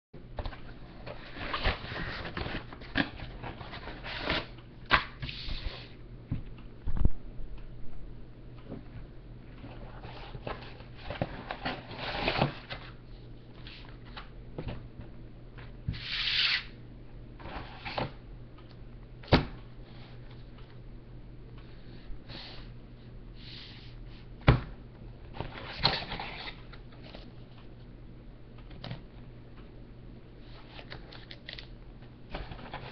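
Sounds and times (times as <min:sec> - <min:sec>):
low steady hum: 0:00.2 - 0:32.9
cardboard and paper rustling: 0:00.4 - 0:04.5, 0:09.6 - 0:13.0, 0:32.3 - 0:32.9.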